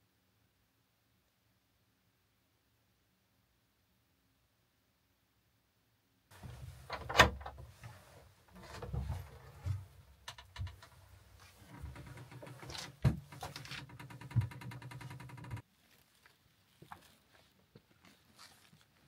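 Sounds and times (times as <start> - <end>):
clothing rustle: 6.3 - 14.0, 15.6 - 19.0
wooden door moving: 6.3 - 15.6
door latch click: 6.9 - 7.6.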